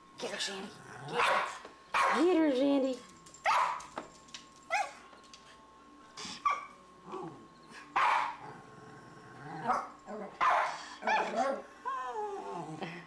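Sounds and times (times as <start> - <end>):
dog barking: 1.1 - 2.3, 3.5 - 3.9, 8.0 - 8.4, 9.7 - 11.6.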